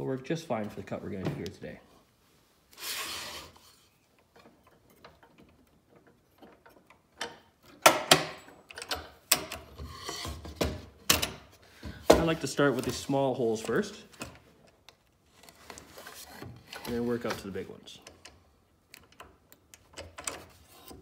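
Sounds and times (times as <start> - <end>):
short scrape: 2.7 - 3.9.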